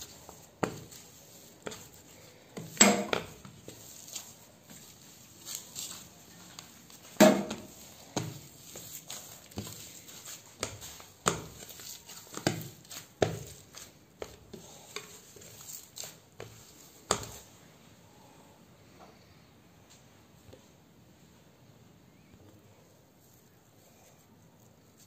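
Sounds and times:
hands kneading dough: 0:00.0 - 0:18.0, 0:23.0 - 0:25.0.

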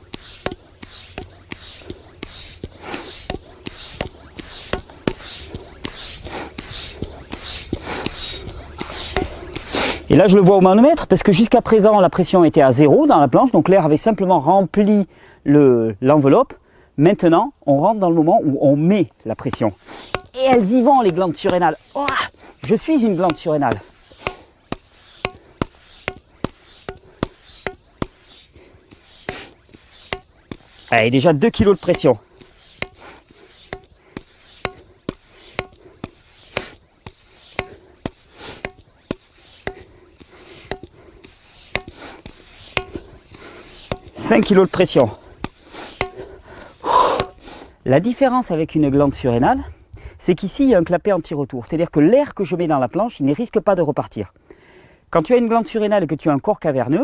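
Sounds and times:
hand pump strokes hissing air: 0:00.0 - 0:14.0, 0:17.7 - 0:48.6
pump clicks: 0:00.1 - 0:09.8, 0:19.4 - 0:47.5.

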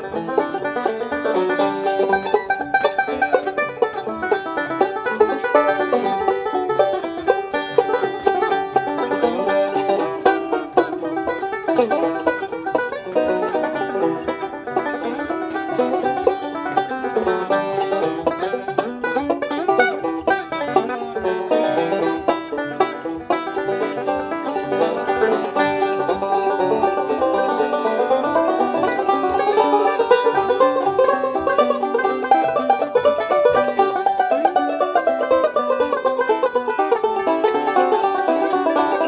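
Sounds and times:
banjo picking quick notes: 0:00.0 - 0:39.0.

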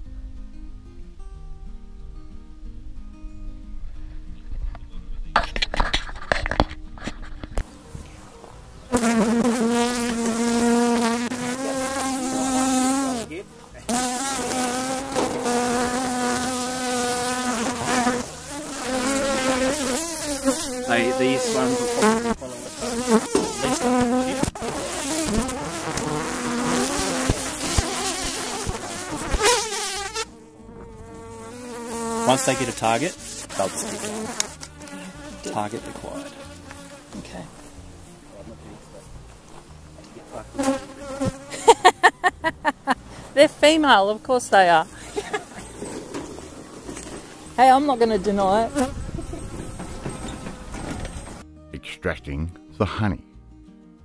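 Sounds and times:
honeybees buzzing: 0:07.5 - 0:51.5
knocks and rustling: 0:48.9 - 0:51.4.

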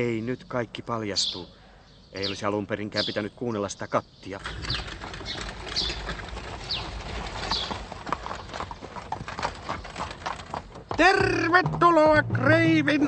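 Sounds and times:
horse hooves clip-clopping: 0:04.4 - 0:13.0.

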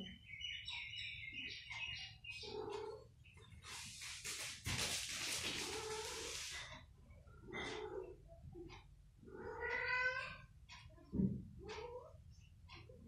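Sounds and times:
kittens chirping: 0:00.0 - 0:04.2
cats hissing: 0:03.8 - 0:06.7
cat meowing: 0:09.4 - 0:10.4.

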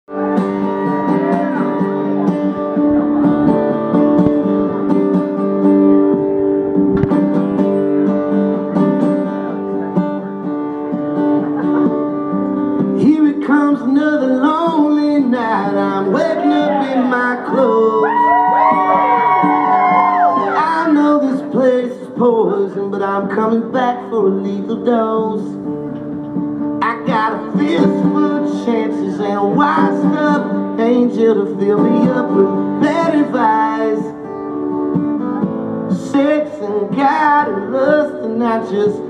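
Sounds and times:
acoustic guitar strumming: 0:00.1 - 0:39.0
person singing: 0:13.0 - 0:25.6, 0:26.8 - 0:34.3, 0:35.3 - 0:39.0.

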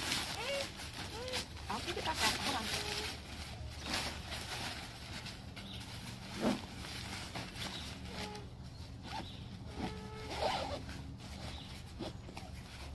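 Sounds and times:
zipper pulled open: 0:09.0 - 0:12.6.

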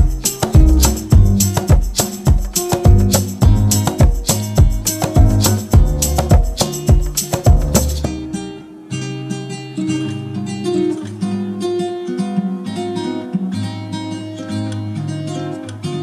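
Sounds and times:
sharp rhythmic strikes: 0:00.0 - 0:08.4
acoustic guitar music: 0:00.0 - 0:16.0.

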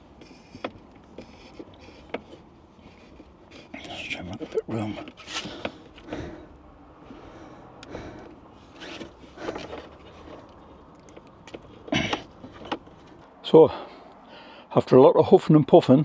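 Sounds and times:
battery cables scraping and knocking: 0:00.0 - 0:06.3, 0:08.7 - 0:13.3.

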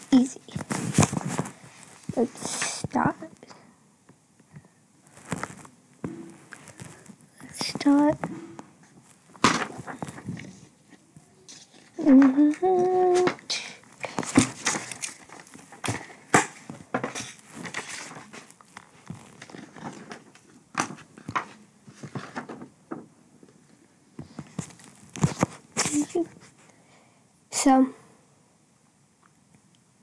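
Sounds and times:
paper rustling: 0:00.1 - 0:02.8, 0:05.1 - 0:10.7, 0:11.5 - 0:23.0, 0:24.2 - 0:26.6.

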